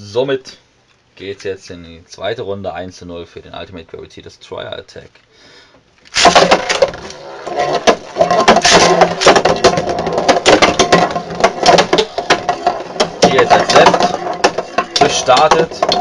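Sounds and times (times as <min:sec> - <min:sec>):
spinning tops clashing: 0:06.1 - 0:16.0.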